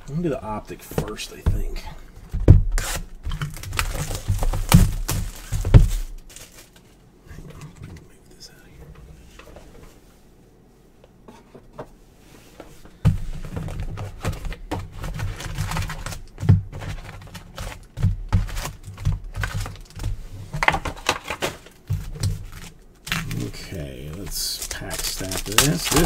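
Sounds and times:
cardboard and foil crinkling: 2.8s - 7.0s, 13.6s - 26.0s.

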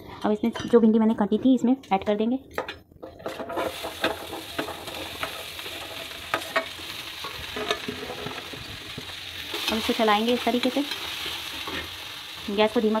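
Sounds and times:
steel spatula scraping a pan: 3.2s - 8.6s
okra sizzling in hot oil: 3.2s - 13.0s.

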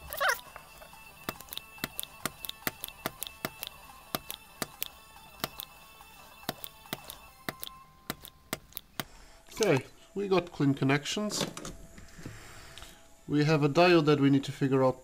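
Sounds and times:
hand tools ticking on circuit board: 1.3s - 5.7s, 6.5s - 9.1s.

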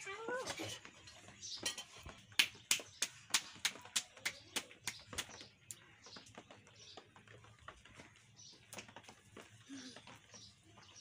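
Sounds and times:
hands slapping dough: 2.4s - 5.4s.

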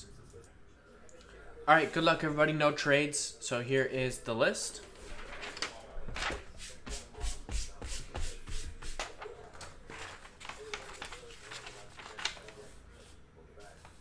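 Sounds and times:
paper rustling: 4.9s - 14.0s.

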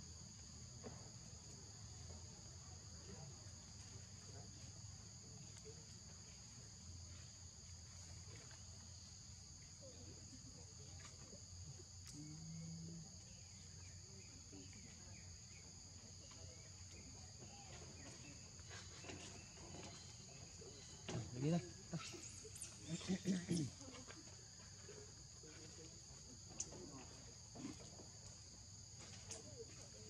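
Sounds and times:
insects calling: 6.0s - 30.0s.

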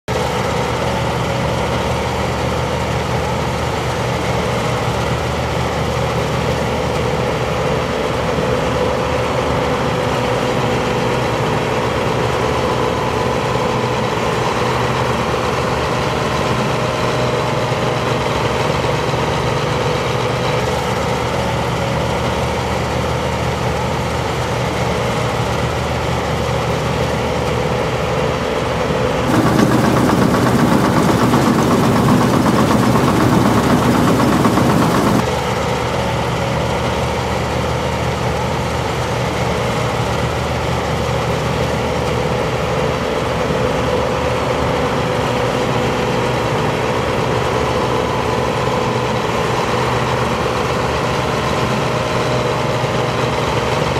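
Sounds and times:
combine harvester droning: 29.3s - 35.3s.

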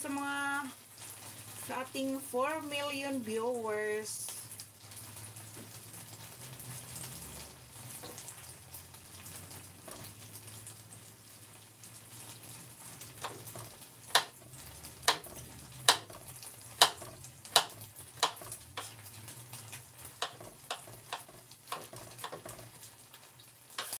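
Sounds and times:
sharp knocks on kitchen counter: 13.2s - 14.4s, 15.1s - 16.2s, 16.8s - 18.6s.

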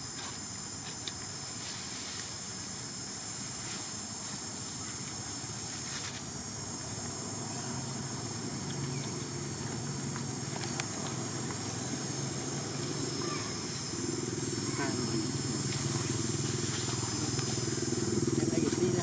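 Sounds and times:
high-pitched drone: 6.4s - 19.0s
low motor-like rumble: 6.7s - 19.0s.

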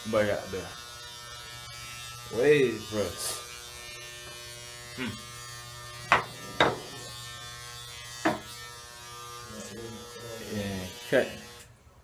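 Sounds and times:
electric hair clippers buzzing: 0.0s - 11.7s
sharp knocks: 6.1s - 6.8s, 8.2s - 8.4s.

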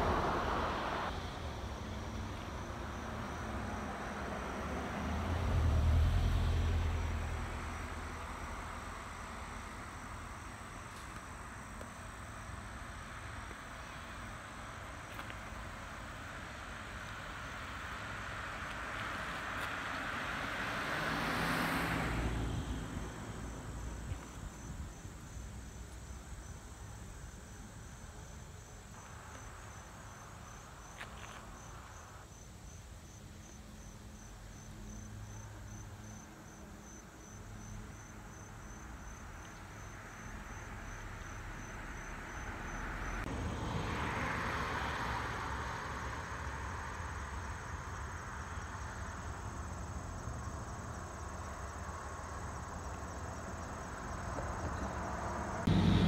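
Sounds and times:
crickets chirping: 0.0s - 56.0s
high insect trill: 21.1s - 43.3s, 45.3s - 55.8s.

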